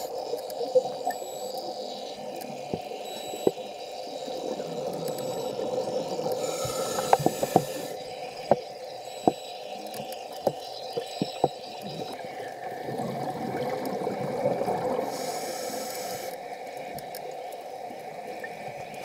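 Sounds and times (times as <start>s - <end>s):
sharp underwater clicks: 0.0s - 3.7s, 4.8s - 12.2s, 15.8s - 17.6s
underwater hum with hiss: 0.0s - 19.0s.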